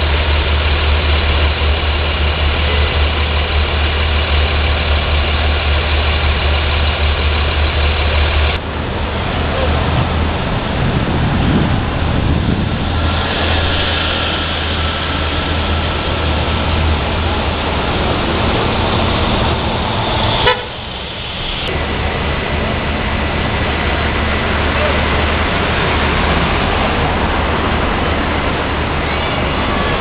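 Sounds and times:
traffic engines running: 0.0s - 30.0s
car horn honking: 20.4s - 20.9s.

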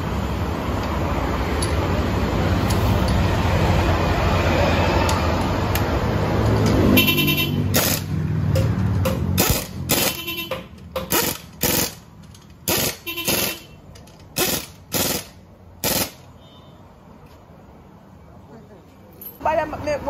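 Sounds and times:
pneumatic impact wrench: 7.7s - 16.3s.

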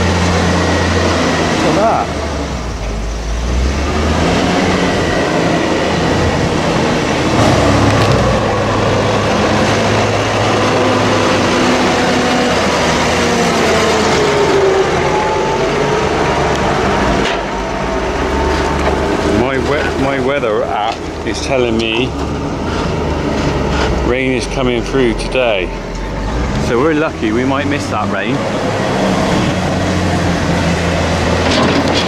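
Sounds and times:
tractor diesel engine passing: 0.0s - 32.0s.

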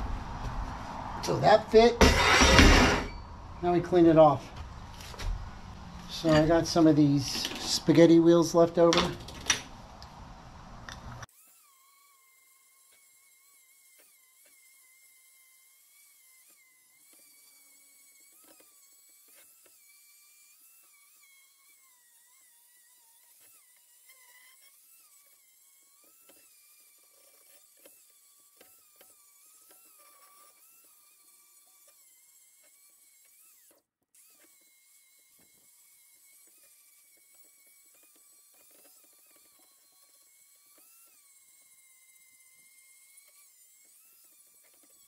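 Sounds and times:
faint angle grinder whine: 0.0s - 45.0s.

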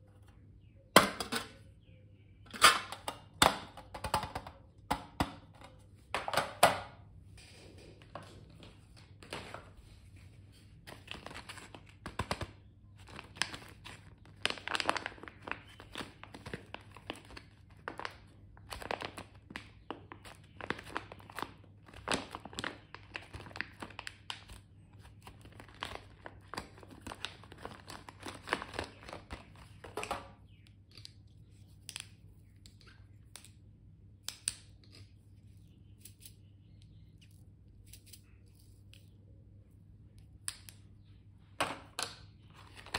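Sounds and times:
plastic packaging crinkling and tearing: 10.5s - 30.1s, 42.5s - 42.9s.

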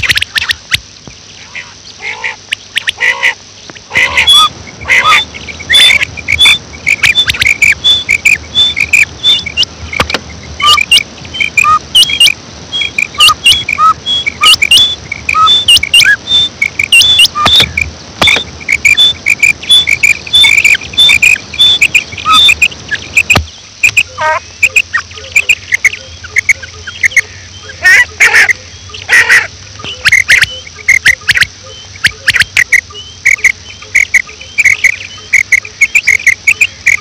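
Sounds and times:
quail chirping: 0.0s - 37.0s
sharp clicks: 5.9s - 27.2s, 32.3s - 37.0s.

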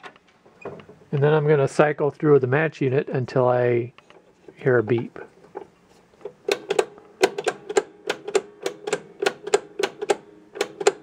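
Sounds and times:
pinball ratchet clicking: 6.4s - 11.0s.

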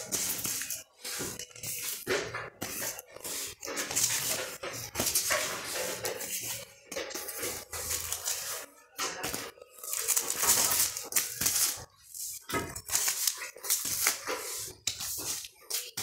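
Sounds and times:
plastic sleeves crinkling: 9.6s - 12.0s.

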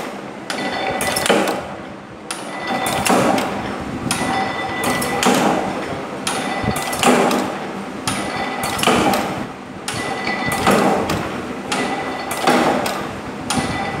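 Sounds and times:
machine hum: 0.0s - 14.0s
power press stamping: 0.0s - 14.0s.

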